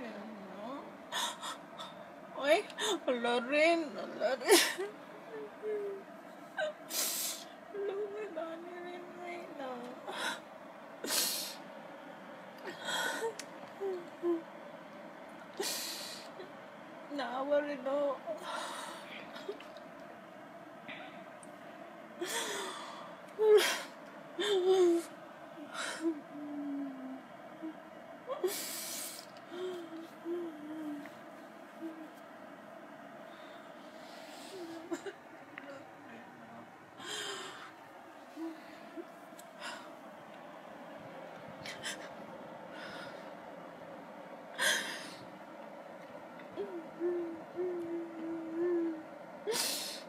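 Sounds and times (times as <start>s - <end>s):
woman sobbing and whimpering: 1.1s - 11.6s, 12.6s - 14.6s, 22.2s - 31.1s, 34.1s - 35.9s, 46.6s - 50.0s
woman crying quietly: 4.3s - 8.2s, 22.2s - 32.2s, 33.3s - 35.9s, 37.0s - 40.0s.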